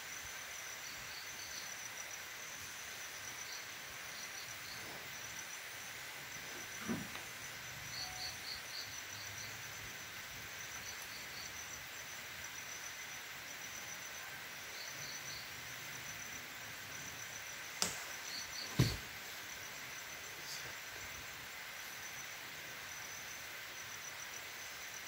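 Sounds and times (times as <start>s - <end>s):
insects chirping: 0.0s - 25.0s
sharp knocks: 18.7s - 19.0s.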